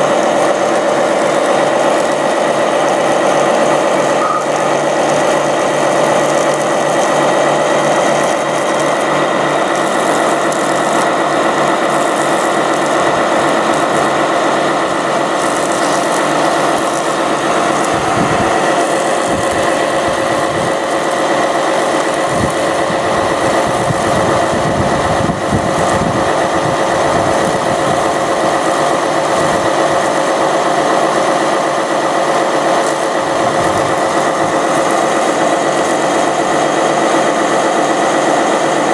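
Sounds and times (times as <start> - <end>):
toy fire trucks mechanical drone: 0.0 - 38.9.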